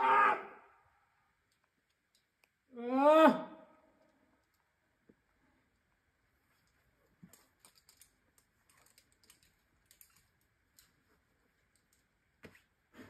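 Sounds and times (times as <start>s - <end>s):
faint clicks and ticks: 6.6s - 12.1s.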